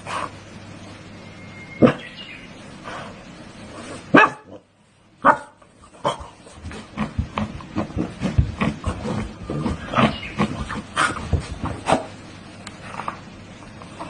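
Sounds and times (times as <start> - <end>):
puppy barking and yipping: 4.1 - 4.5.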